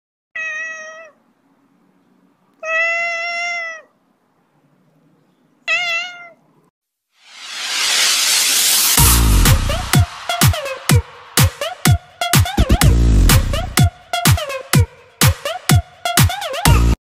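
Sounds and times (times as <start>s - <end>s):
cat meowing: 0.4s - 1.2s, 2.6s - 4.0s, 5.6s - 6.5s
loud whoosh of noise: 7.2s - 12.2s.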